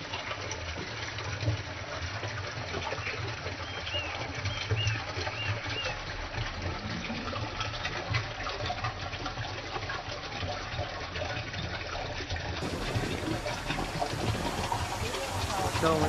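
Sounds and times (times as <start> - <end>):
stream water rushing: 12.6 - 16.0
water splashing: 12.6 - 16.0.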